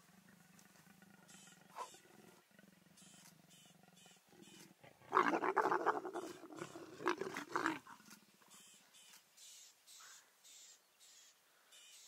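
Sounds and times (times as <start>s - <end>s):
leopards growling: 0.0s - 8.2s.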